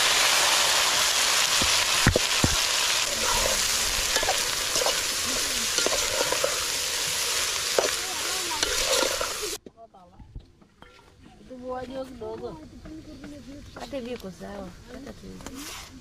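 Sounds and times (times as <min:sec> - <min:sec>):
fish sizzling in hot fat: 0:00.0 - 0:09.6.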